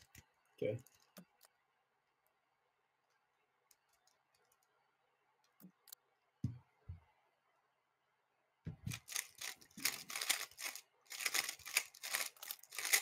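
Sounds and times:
puzzle cube clicking: 0:08.9 - 0:13.0.

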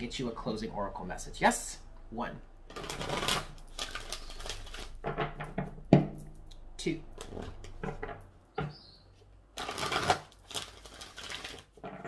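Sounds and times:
cards being shuffled: 0:02.8 - 0:05.0, 0:09.6 - 0:11.7.

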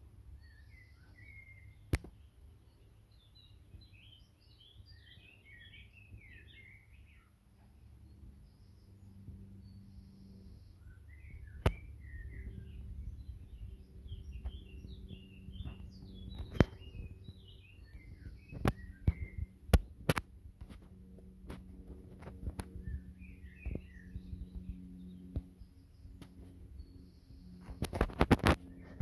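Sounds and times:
small birds chirping: 0:00.0 - 0:29.0
steady low rumble: 0:00.0 - 0:29.0
sharp clicks and knocks: 0:15.6 - 0:17.4, 0:18.5 - 0:22.8.

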